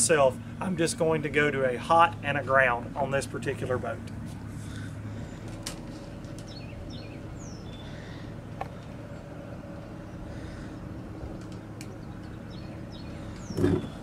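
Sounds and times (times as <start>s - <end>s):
low mechanical hum: 0.0s - 14.0s
small birds chirping: 4.5s - 14.0s
light clicks of wires: 11.4s - 12.4s.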